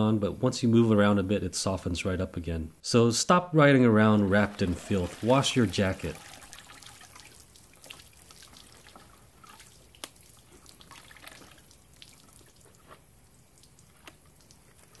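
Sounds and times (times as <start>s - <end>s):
water dripping into bucket: 4.4s - 15.0s.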